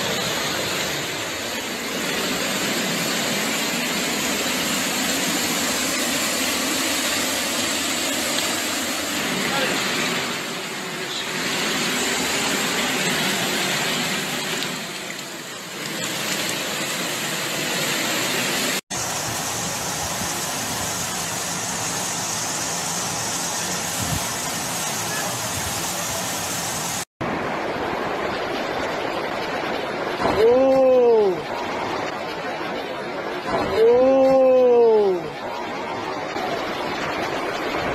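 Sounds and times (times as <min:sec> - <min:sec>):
floodwater rushing: 0:00.0 - 0:37.9
person crying out: 0:30.3 - 0:31.4, 0:33.7 - 0:35.3.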